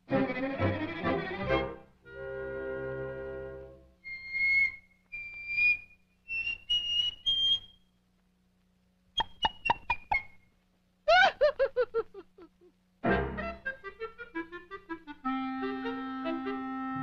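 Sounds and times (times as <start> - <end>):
cartoon whistle notes: 4.0 - 7.8.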